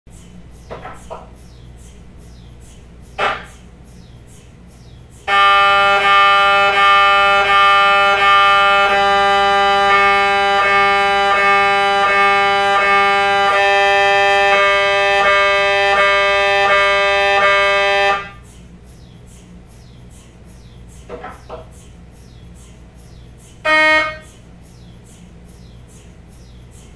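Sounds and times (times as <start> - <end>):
mri scanner pulsed buzzing: 1.4 - 21.1.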